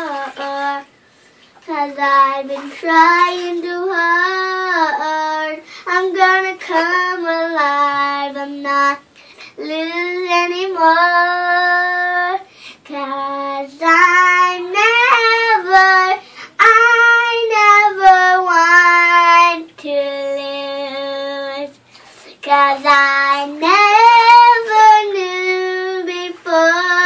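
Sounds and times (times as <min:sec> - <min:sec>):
girl singing unaccompanied: 0:00.0 - 0:01.0, 0:01.6 - 0:27.0
girl breathing: 0:05.6 - 0:05.9, 0:12.5 - 0:12.8, 0:16.2 - 0:16.6.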